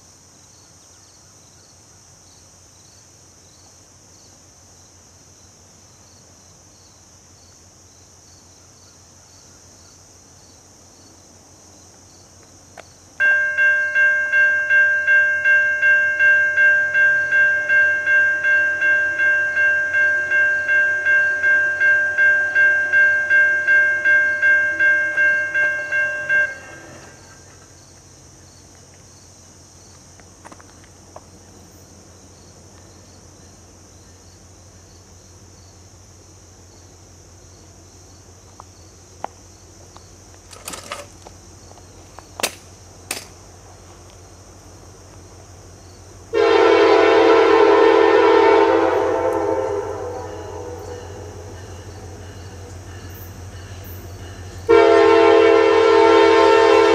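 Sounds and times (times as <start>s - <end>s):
crickets chirping: 0.0s - 56.9s
railroad crossing bell ringing: 13.2s - 27.4s, 46.4s - 56.9s.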